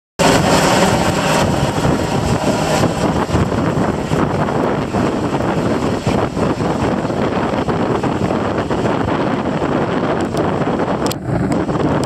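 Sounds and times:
helicopter rotor and turbine: 0.2s - 12.0s
wind buffeting microphone: 0.2s - 12.0s.

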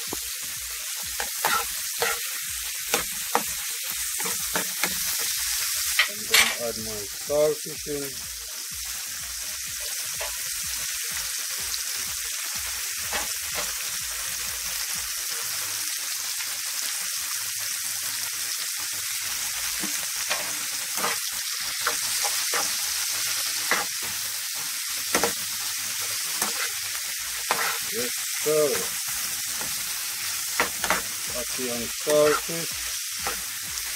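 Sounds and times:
food sizzling in oil: 0.0s - 33.9s
metal spatula scraping pan: 1.2s - 3.4s, 19.8s - 21.2s, 26.3s - 26.8s, 27.4s - 27.9s.

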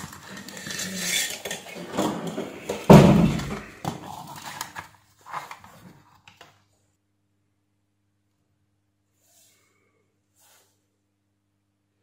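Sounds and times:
heavy thump on workbench: 2.9s - 3.7s.

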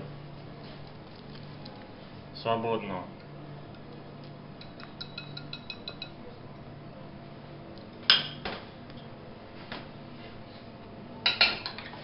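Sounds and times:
whisk tapping glass bowl: 4.6s - 6.1s.

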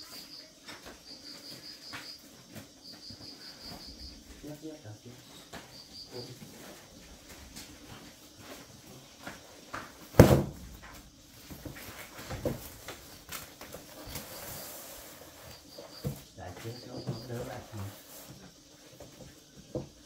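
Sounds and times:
heavy thump: 10.1s - 11.0s.

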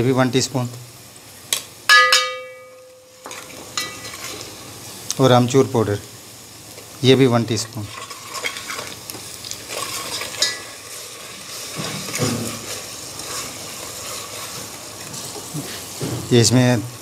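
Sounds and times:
onions sizzling in oil: 0.0s - 17.0s
metal ladle scraping pot: 9.7s - 15.3s.

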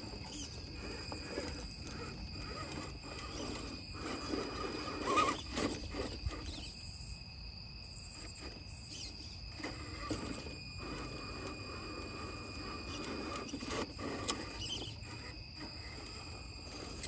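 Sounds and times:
tires scraping and knocking on stone: 0.0s - 6.6s
electric motor and gears whirring: 0.0s - 17.0s.

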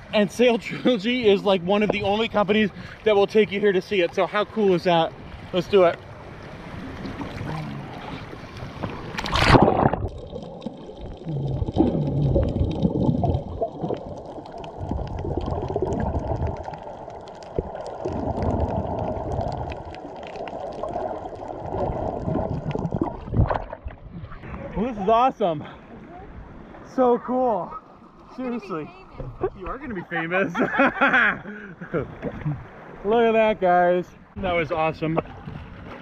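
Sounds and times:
muffled underwater rushing: 1.2s - 25.1s
loud splash into water: 9.1s - 10.4s.

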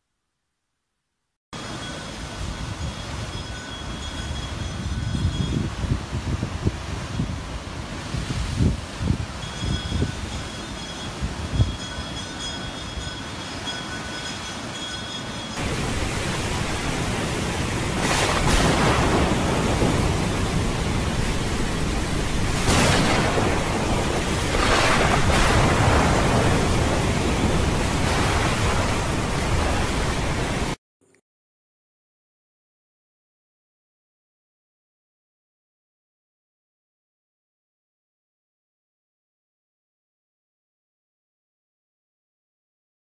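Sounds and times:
stormy wind and rain: 1.6s - 30.8s
wind on microphone: 1.6s - 30.8s
surf breaking on rocks: 15.6s - 30.8s.

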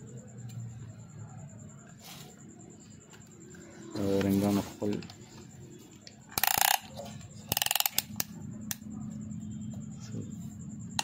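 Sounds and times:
ratchet clicking: 6.3s - 8.3s.

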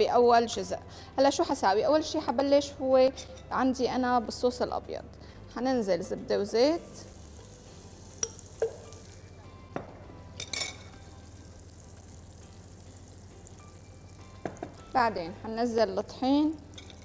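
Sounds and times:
butter and oil sizzling in a pan: 6.7s - 9.6s, 10.3s - 17.0s.

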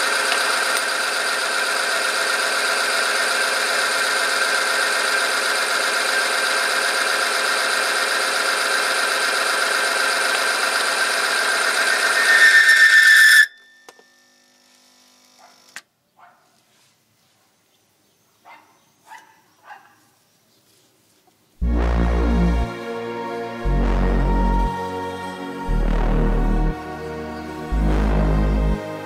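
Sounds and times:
machine screeching whine: 6.1s - 14.6s.

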